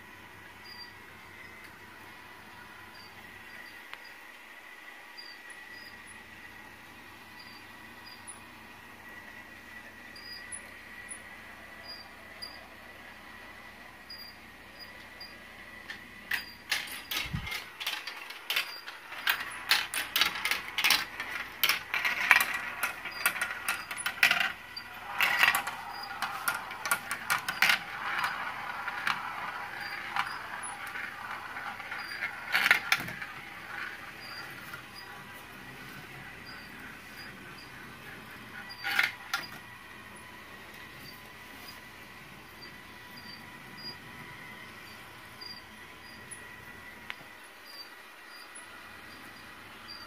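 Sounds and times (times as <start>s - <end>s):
marbles rattling through plastic track: 15.9s - 39.7s.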